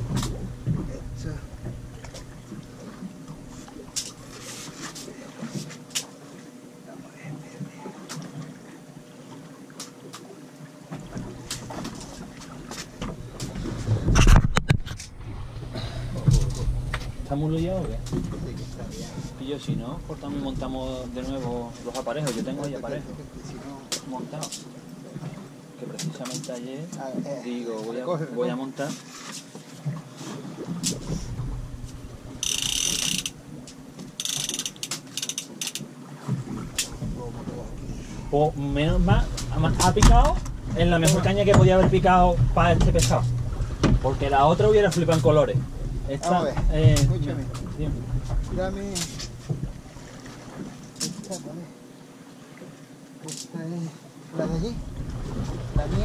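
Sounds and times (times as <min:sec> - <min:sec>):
small clicks: 0:32.4 - 0:35.8.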